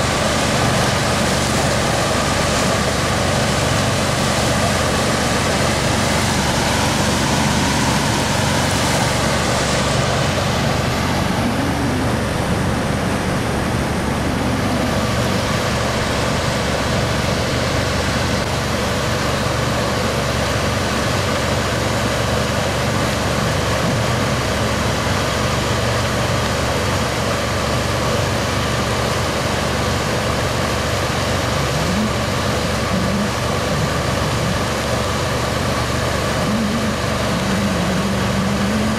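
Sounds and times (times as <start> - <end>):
boat engine running: 0.0 - 38.9
water rushing along a hull: 0.0 - 38.9.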